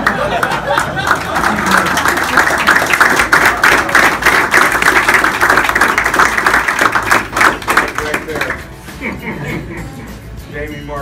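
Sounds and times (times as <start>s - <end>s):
people applauding: 0.0s - 8.6s.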